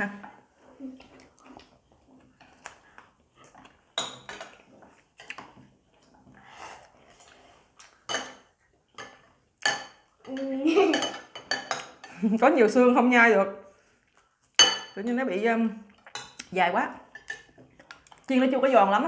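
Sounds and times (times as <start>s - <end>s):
cutlery clinking on ceramic bowls: 3.9s - 4.6s, 8.0s - 12.2s, 14.6s - 15.0s, 17.1s - 17.7s.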